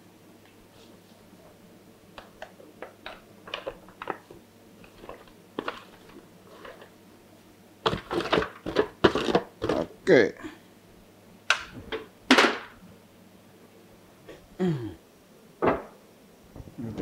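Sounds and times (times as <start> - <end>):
leaves rustling into pot: 3.4 - 6.9
foil tray shaken: 4.9 - 6.9, 7.9 - 9.9.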